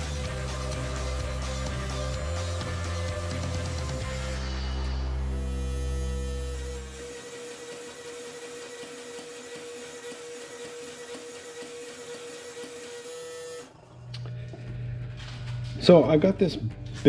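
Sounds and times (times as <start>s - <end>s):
deep heavy hum: 0.0s - 7.0s, 13.8s - 17.0s
hydraulic power unit whirring: 0.0s - 15.8s.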